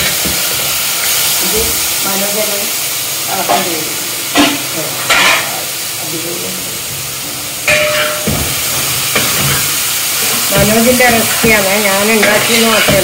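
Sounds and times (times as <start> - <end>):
chicken sizzling in a pan: 0.0 - 13.0
spatula scraping a pan: 7.7 - 13.0.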